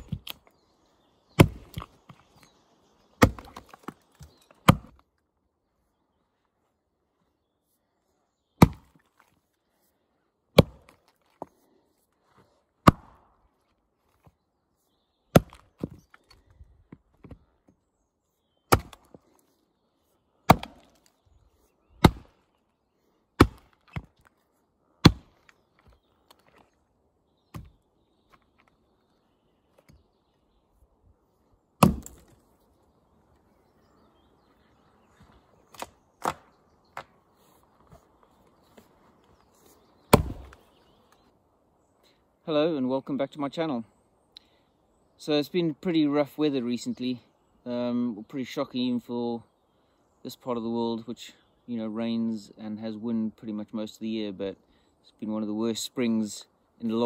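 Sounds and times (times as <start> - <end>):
axe chopping into log: 1.4 - 2.0, 3.2 - 4.0, 4.6 - 5.0, 8.6 - 9.0, 10.6 - 11.0, 12.8 - 13.3, 15.3 - 16.0, 18.7 - 19.2, 20.5 - 21.0, 22.0 - 22.4, 23.4 - 24.2, 25.0 - 25.4, 27.5 - 27.7, 31.8 - 32.4, 35.7 - 37.1, 40.1 - 40.6.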